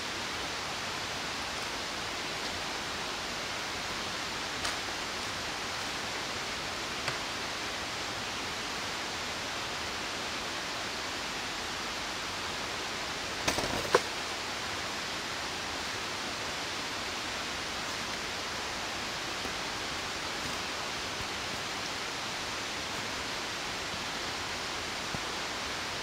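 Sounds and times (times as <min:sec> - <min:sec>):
waterfall rushing: 0:14.1 - 0:26.0.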